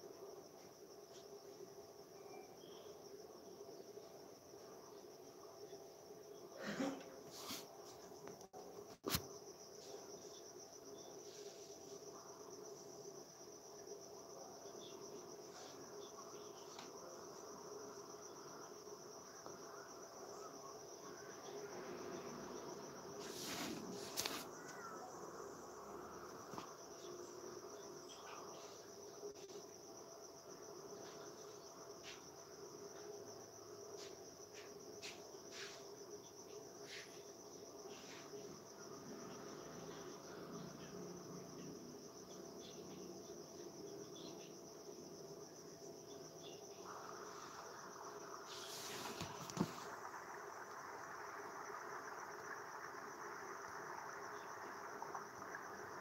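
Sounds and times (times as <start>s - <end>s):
insect chirring: 0.0s - 56.0s.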